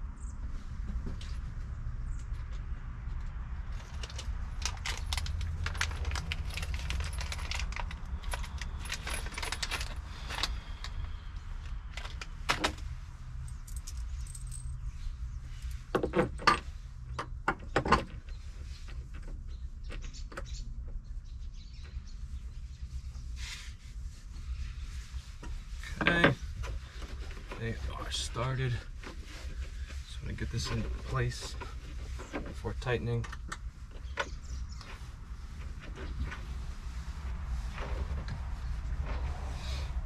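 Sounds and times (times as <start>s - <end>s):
metal bolts and washers clinking: 3.7s - 11.0s, 11.9s - 14.9s.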